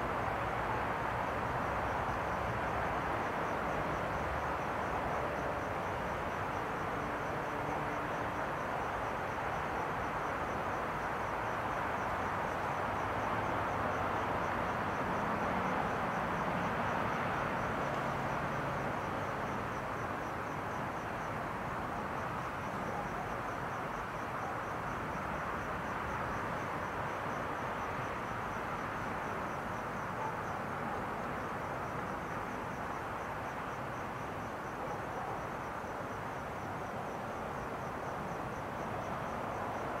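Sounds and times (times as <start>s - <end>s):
cricket chirping: 0.0s - 40.0s
steady background hiss: 0.0s - 40.0s.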